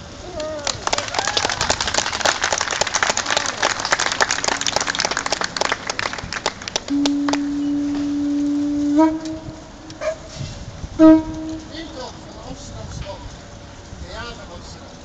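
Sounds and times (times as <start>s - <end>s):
crowd clapping: 0.3s - 8.1s
held horn-like note: 4.6s - 12.4s.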